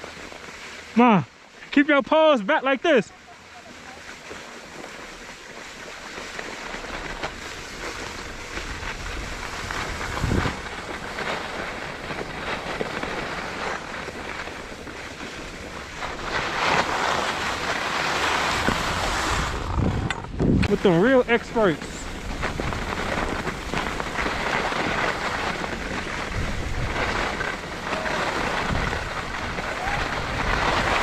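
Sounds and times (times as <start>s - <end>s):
skis scraping over snow: 0.0s - 31.0s
wind buffeting microphone: 7.7s - 16.4s, 18.6s - 31.0s.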